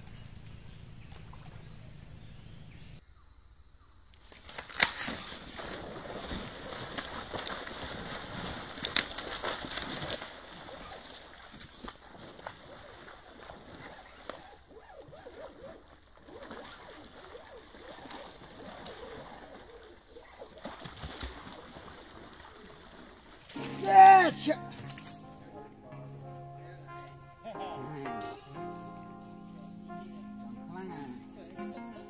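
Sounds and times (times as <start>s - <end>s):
fishing rod handling rustle: 23.4s - 25.6s.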